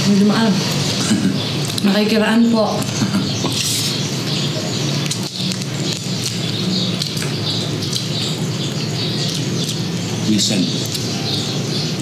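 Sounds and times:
crispy pork skin crunching: 5.0s - 10.0s.

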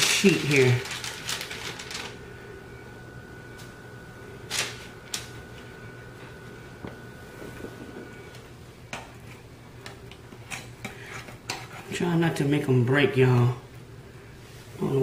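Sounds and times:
paper rustling: 0.0s - 2.2s, 4.5s - 5.4s
faint high whine: 0.0s - 9.1s
utensil scraping: 10.3s - 12.1s.

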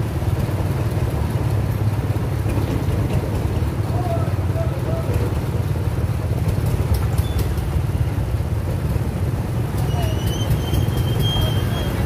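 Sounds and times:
diesel engine chugging: 0.0s - 12.0s
scooter engines: 0.0s - 12.0s
thin high squeal: 9.8s - 12.0s.

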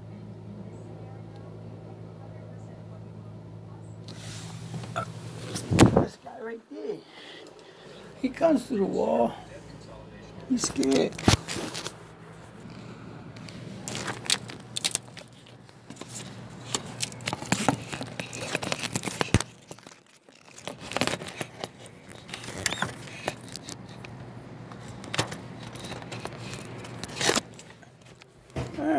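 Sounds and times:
faint low hum: 0.0s - 28.9s
phone handling rustling and scraping: 10.4s - 28.7s.

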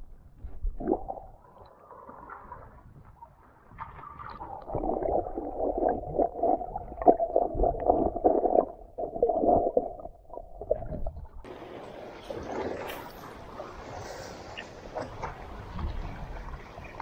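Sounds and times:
water gurgling underwater: 0.6s - 11.6s.

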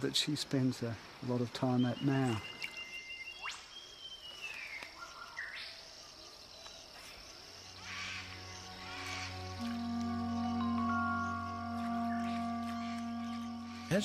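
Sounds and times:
insects chirring: 0.0s - 14.0s
soft background music: 7.5s - 14.0s.

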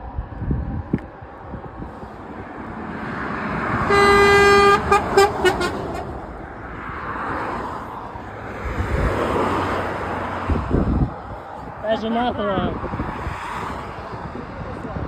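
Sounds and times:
traffic passing close by: 0.0s - 15.0s
lorry horn blasts and toots: 3.8s - 6.1s.

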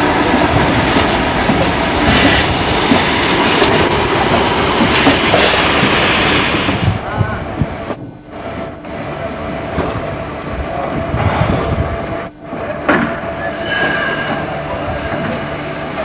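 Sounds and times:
steam hissing: 0.0s - 7.2s, 13.1s - 16.0s
voices: 7.0s - 8.0s.

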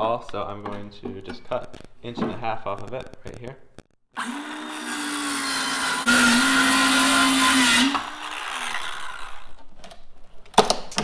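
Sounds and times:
circular saw cutting plywood: 4.2s - 9.6s.

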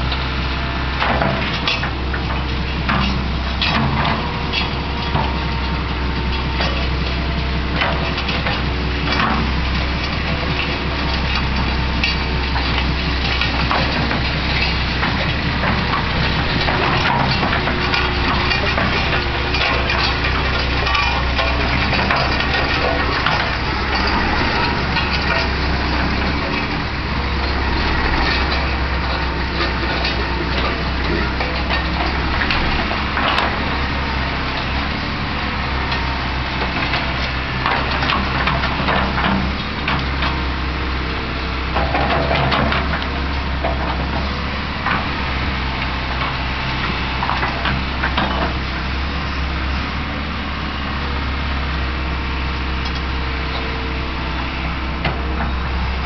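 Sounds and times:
excavator diesel engine running: 0.0s - 56.0s
road roller passing: 0.0s - 56.0s
knocks and clanks: 1.0s - 34.8s, 41.7s - 45.1s.

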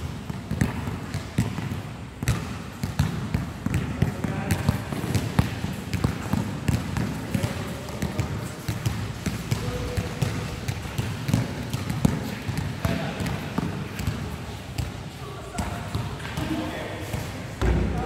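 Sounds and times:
basketball bouncing on hard court: 0.0s - 18.0s
players' voices: 3.6s - 18.0s.

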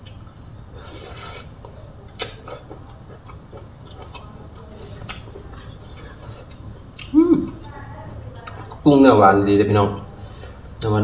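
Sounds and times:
chewing clicks and smacks: 1.6s - 7.2s, 8.4s - 8.8s.

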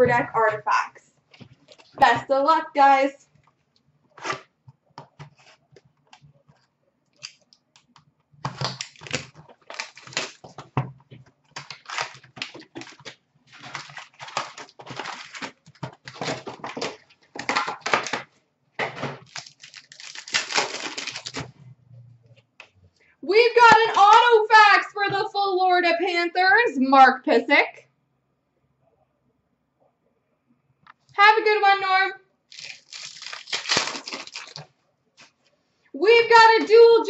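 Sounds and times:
wrapper clicks and rustles: 5.3s - 10.8s, 11.4s - 18.3s, 19.2s - 21.6s, 32.5s - 35.5s
card pack wrappers tearing: 8.4s - 10.6s, 11.6s - 18.2s, 19.2s - 21.5s, 32.5s - 34.7s.

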